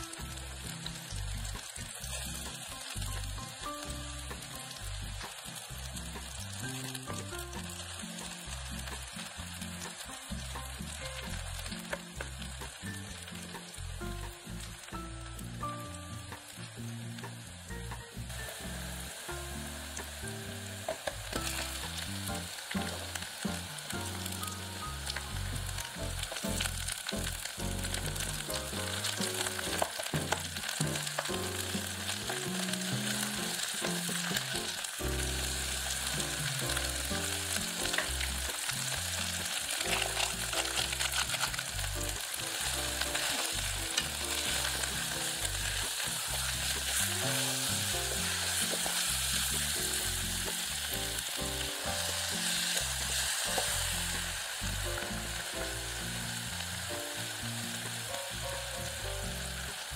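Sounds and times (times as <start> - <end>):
vegetables sizzling in hot oil: 0.0 - 59.9
stirring clicks: 37.9 - 42.2.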